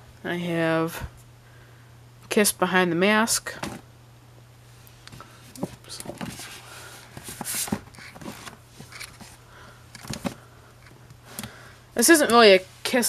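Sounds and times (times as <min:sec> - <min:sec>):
books rustling and knocking: 0:03.5 - 0:03.8, 0:05.5 - 0:09.4, 0:10.0 - 0:10.5.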